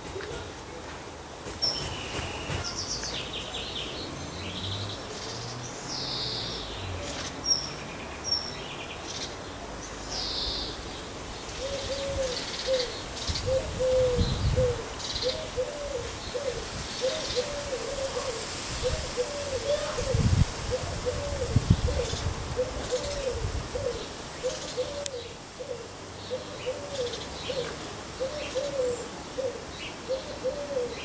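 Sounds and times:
garden birds singing: 0.0s - 31.0s.

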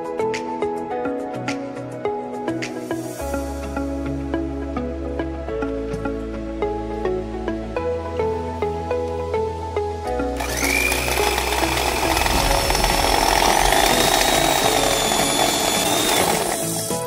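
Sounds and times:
soft background music: 0.0s - 17.0s
electric hand mixer whirring: 10.4s - 17.0s.

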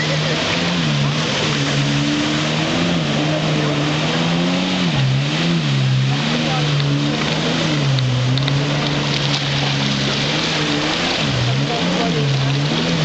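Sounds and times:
jet ski engine revving: 0.0s - 13.0s.

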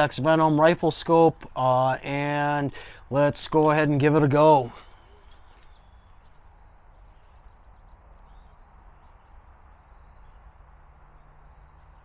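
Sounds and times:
faint bird chirps: 4.6s - 12.0s.

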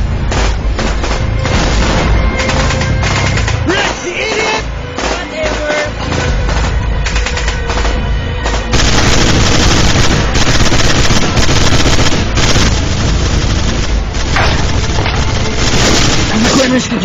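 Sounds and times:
background music: 0.0s - 17.0s
automatic gunfire: 4.3s - 16.7s.

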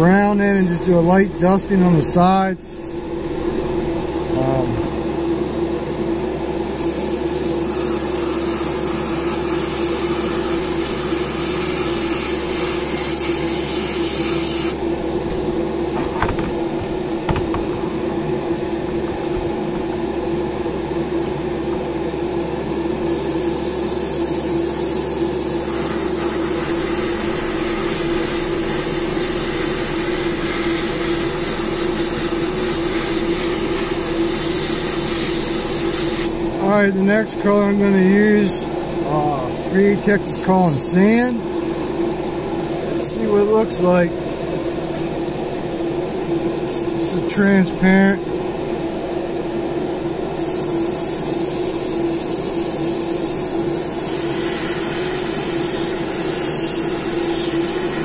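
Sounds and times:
spray booth fan whirring: 0.0s - 58.0s.

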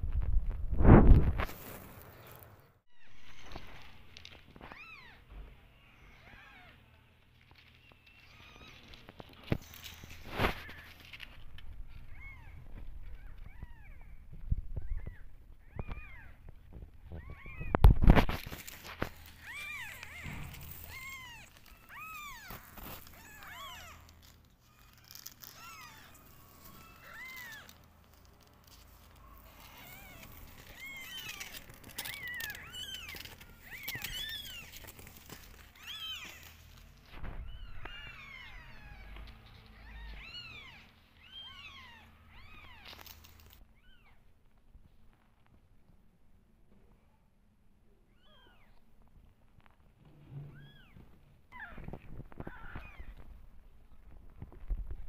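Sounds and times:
kittens mewing: 3.1s - 7.1s, 7.7s - 44.2s, 50.4s - 53.4s.

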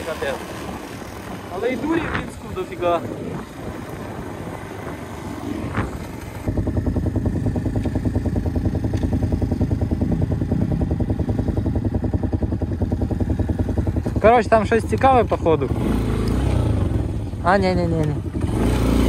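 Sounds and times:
motorcycle engine running: 0.0s - 19.0s
wind-like rushing: 0.2s - 14.0s.

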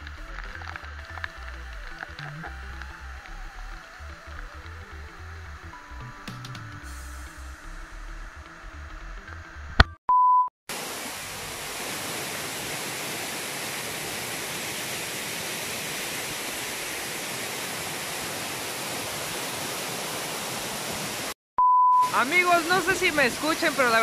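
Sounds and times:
music: 0.0s - 10.0s
short electronic beep: 10.1s - 10.5s, 21.6s - 22.2s
fast-flowing water rushing: 10.7s - 21.4s, 22.1s - 24.0s.

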